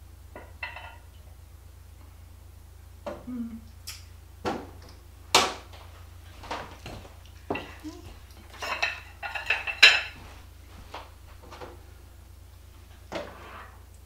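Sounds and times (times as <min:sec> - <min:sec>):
china dishes clinking: 0:00.4 - 0:01.0, 0:07.5 - 0:10.2.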